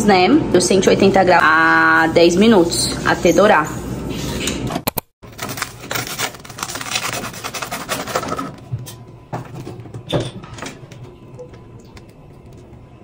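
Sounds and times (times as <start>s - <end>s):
bread crust crunching and crackling: 5.2s - 8.4s.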